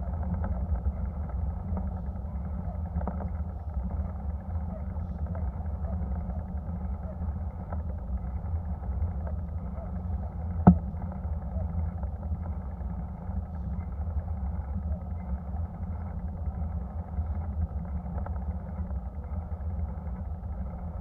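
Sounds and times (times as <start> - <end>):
bike rolling on asphalt: 0.0 - 21.0
wind rumble on microphone: 0.0 - 21.0.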